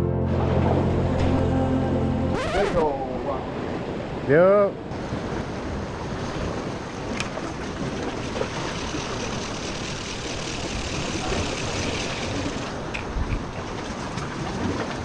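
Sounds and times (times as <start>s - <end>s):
surf washing against rocks: 2.7s - 15.0s
wind on microphone: 4.9s - 15.0s.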